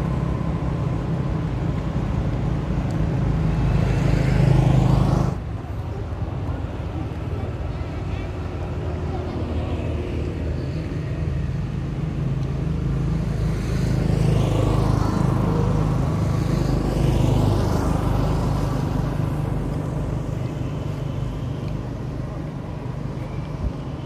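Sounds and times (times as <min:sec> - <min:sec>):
vehicle passing: 0:02.6 - 0:05.5, 0:09.2 - 0:23.4.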